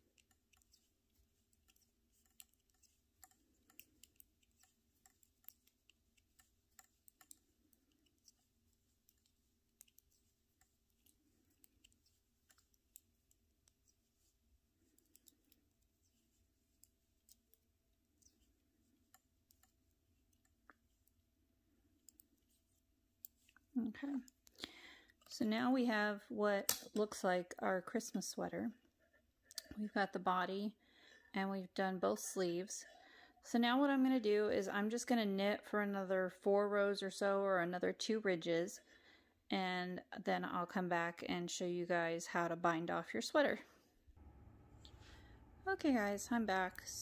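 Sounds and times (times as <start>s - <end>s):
metal knitting needles clicking: 0.0s - 24.6s.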